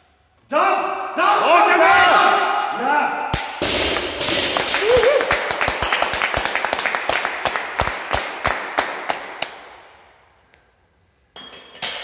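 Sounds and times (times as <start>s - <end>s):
hand clapping: 3.4s - 10.0s.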